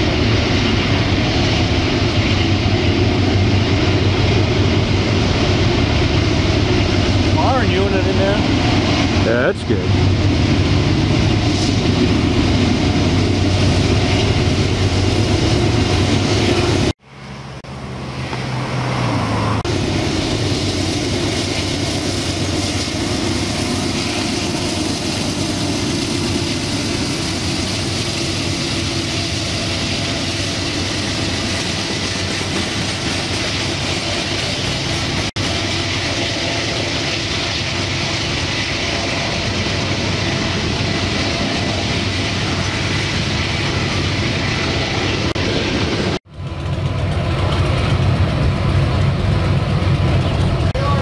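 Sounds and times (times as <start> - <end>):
diesel locomotive engines droning: 0.0 - 51.0
wheels rumbling on rail: 0.0 - 51.0.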